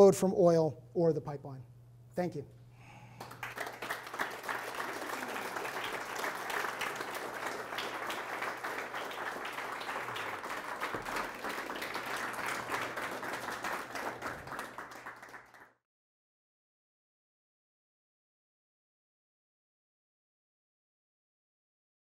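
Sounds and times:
people applauding: 0:03.1 - 0:15.8.

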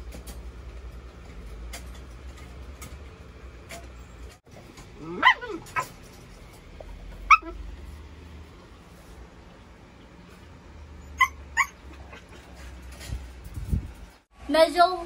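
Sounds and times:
puppy yips: 0:07.2 - 0:07.6, 0:11.0 - 0:12.4.

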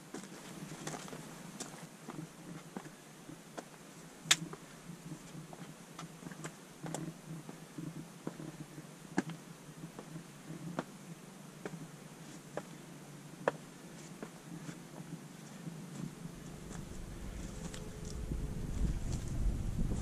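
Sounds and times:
steady rustle: 0:11.7 - 0:20.0.

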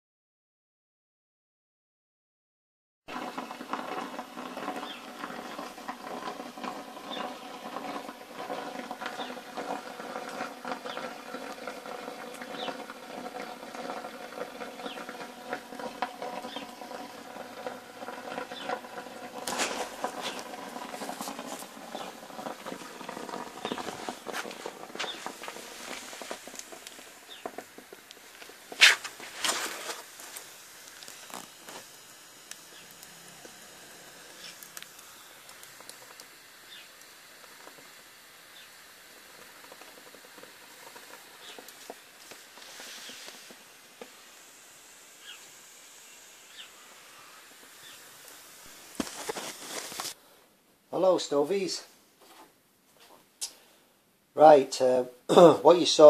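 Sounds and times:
sharp crack of fire: 0:03.1 - 0:50.2
water boiling with steady hum: 0:03.1 - 0:56.0
wood fire crackling: 0:03.1 - 0:56.0.

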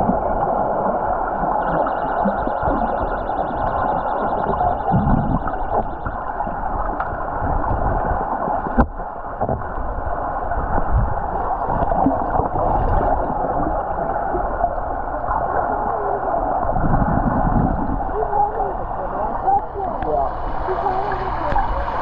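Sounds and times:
muffled underwater water rush: 0:00.0 - 0:22.0.

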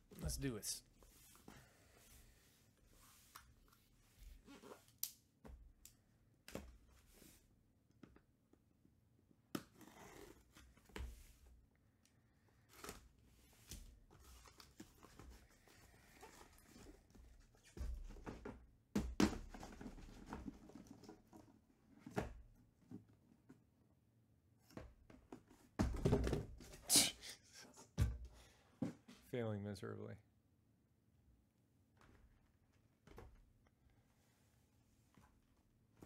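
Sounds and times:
boxes set down in a stack: 0:25.8 - 0:26.8.

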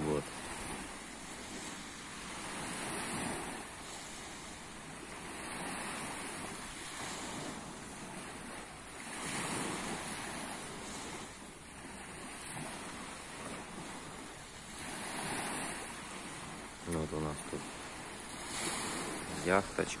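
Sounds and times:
small waves lapping on beach: 0:00.0 - 0:20.0.

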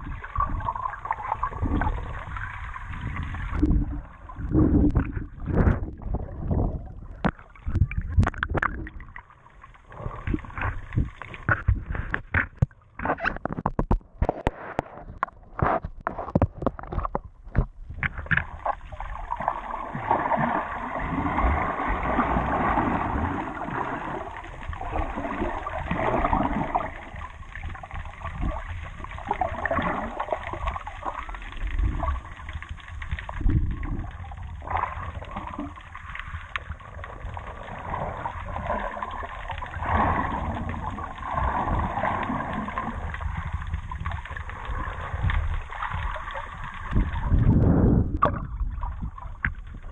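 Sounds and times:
sea water splashing: 0:00.0 - 0:13.8, 0:18.1 - 0:49.9
rush of moving water: 0:18.1 - 0:49.9.

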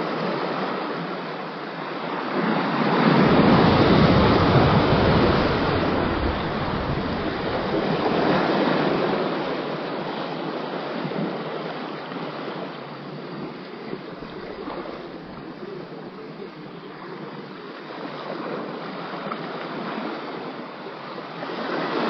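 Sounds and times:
surf splashing against rocks: 0:02.2 - 0:10.1, 0:13.2 - 0:20.4
wind buffeting microphone: 0:02.4 - 0:10.1.

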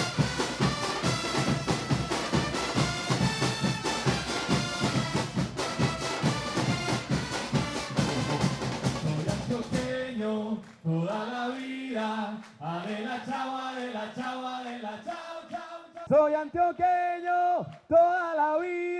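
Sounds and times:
brass band playing: 0:00.0 - 0:10.0
bass drum snare and cymbals: 0:00.0 - 0:10.2
crowd singing a football chant: 0:06.3 - 0:18.9.

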